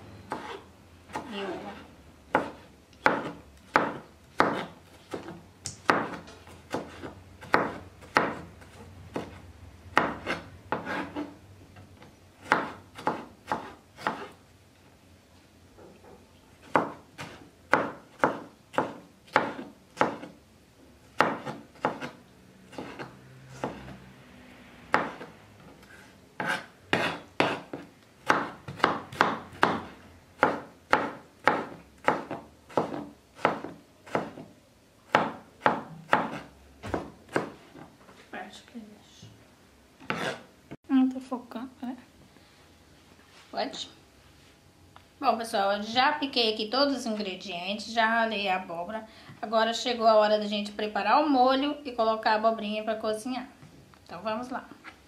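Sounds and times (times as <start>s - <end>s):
knife chopping on cutting board: 0.3s - 1.6s, 2.3s - 9.4s, 10.0s - 11.3s, 12.4s - 14.4s, 16.6s - 20.4s, 21.2s - 24.0s, 24.9s - 25.3s, 26.4s - 34.5s, 35.1s - 37.9s, 40.0s - 40.5s.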